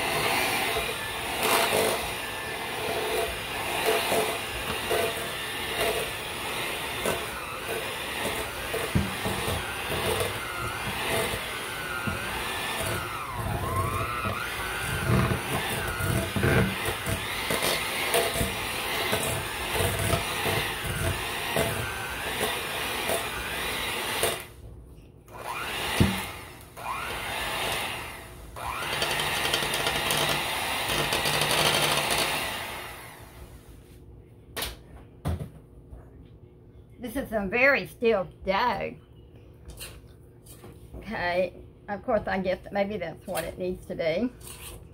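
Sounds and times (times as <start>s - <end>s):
electric hand mixer whining: 0.0s - 24.6s, 25.3s - 33.7s.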